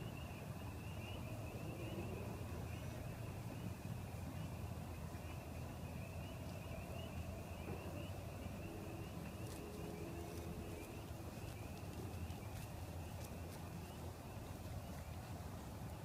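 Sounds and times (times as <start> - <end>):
animals trilling chorus: 5.4 - 13.2.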